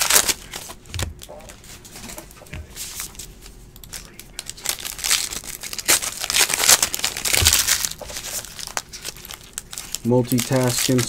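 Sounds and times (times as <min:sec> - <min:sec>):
wrapper crinkling and tearing: 0:00.0 - 0:01.3, 0:03.9 - 0:11.0.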